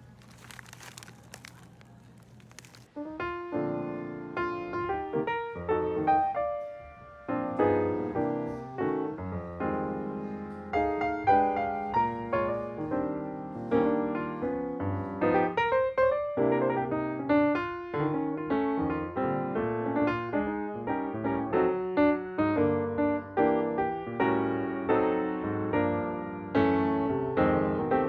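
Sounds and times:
piano music: 2.9s - 28.0s.

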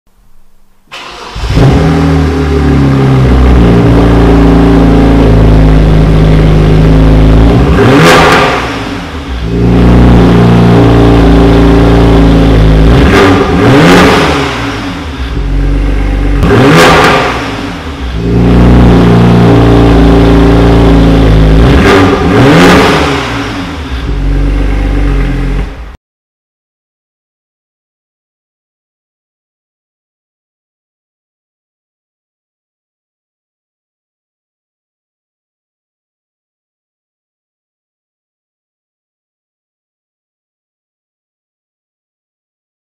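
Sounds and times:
diesel engine revving: 0.9s - 26.0s.

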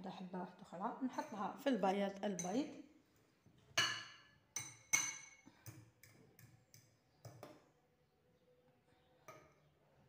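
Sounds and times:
metal fork clinking against ceramic bowl: 3.8s - 7.4s.

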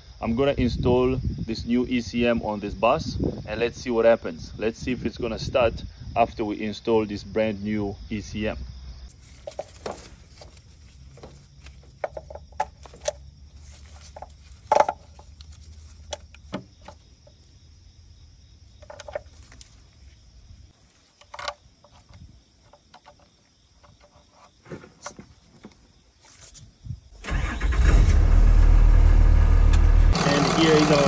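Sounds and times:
connectors clicking and knocking: 9.4s - 13.2s, 18.8s - 19.7s, 21.1s - 25.8s.

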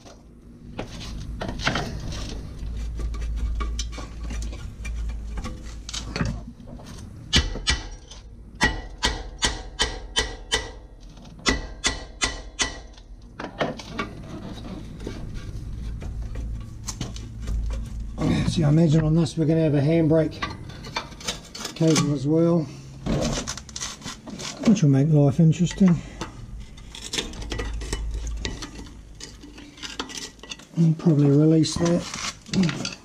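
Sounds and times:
hammer striking metal disc: 7.3s - 10.8s, 11.4s - 13.0s
shuffling and handling noise: 21.1s - 33.0s.

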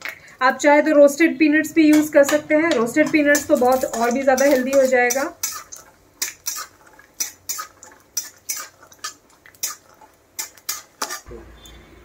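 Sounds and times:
peanuts frying in oil: 0.0s - 11.7s
metal spatula scraping a pan: 1.9s - 11.3s.

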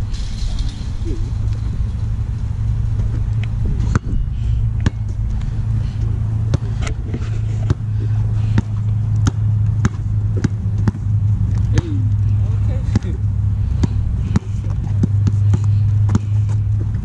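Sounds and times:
steady low rumble: 0.0s - 17.0s
basketball bouncing: 3.0s - 5.3s, 6.1s - 12.2s, 12.8s - 17.0s.

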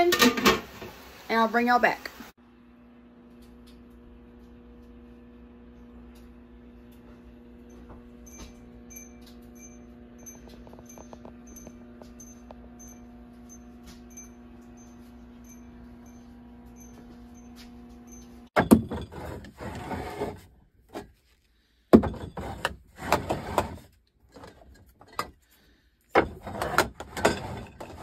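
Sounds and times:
electrical hum: 1.0s - 21.0s
glass jars clattering: 26.2s - 28.0s.

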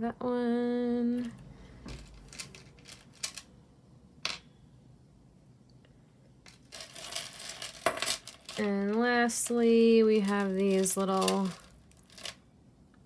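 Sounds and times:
rustling: 1.2s - 3.5s, 6.5s - 12.4s.

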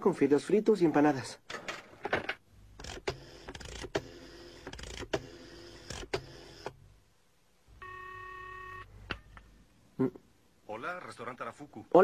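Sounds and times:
rotary dial whirring and clicking: 2.8s - 6.8s
telephone ringing tone: 7.8s - 8.9s.

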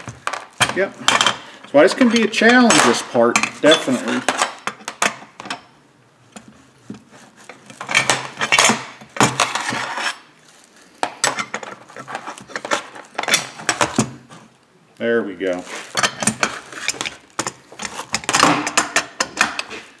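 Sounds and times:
metal parts clinking and scraping: 0.1s - 5.7s, 7.4s - 10.3s, 15.7s - 20.0s.

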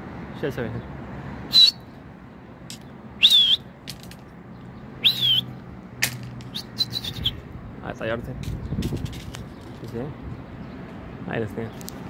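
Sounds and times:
person whistling: 1.5s - 1.8s, 3.2s - 3.6s, 5.0s - 5.5s.

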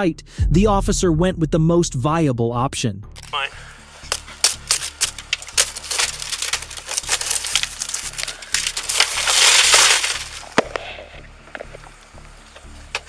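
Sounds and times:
car window glass smashing: 4.1s - 10.8s.

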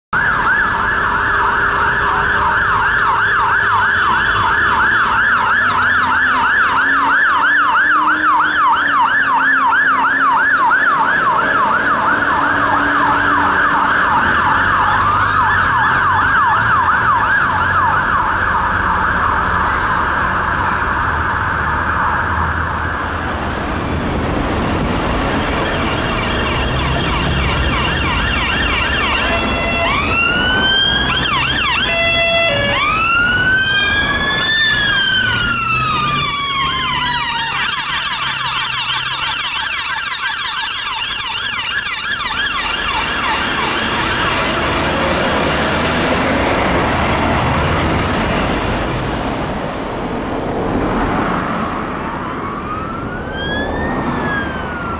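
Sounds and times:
emergency vehicle siren: 0.1s - 54.9s
engine and traffic noise: 0.1s - 54.9s.

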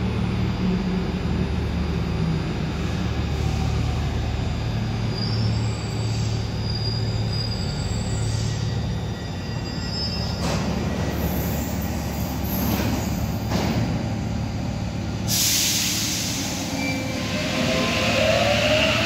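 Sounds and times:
train rumbling: 0.0s - 19.0s
train hiss: 15.2s - 19.0s.

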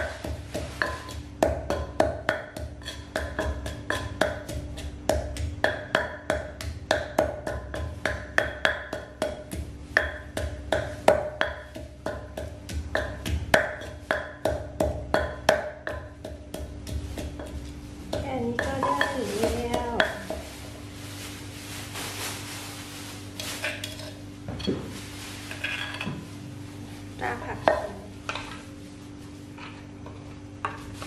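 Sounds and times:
pestle pounding in clay mortar: 0.0s - 20.6s, 27.4s - 28.6s.

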